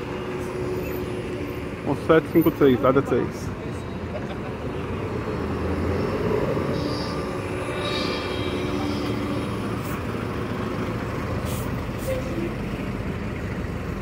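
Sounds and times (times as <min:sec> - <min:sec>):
diesel minibus engine passing: 0:00.0 - 0:14.0
electric bus moving off: 0:00.0 - 0:14.0
short hisses: 0:11.4 - 0:12.1.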